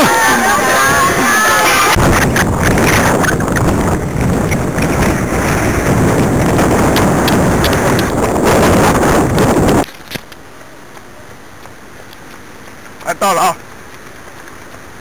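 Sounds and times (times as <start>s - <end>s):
wind buffeting microphone: 0.0s - 10.3s.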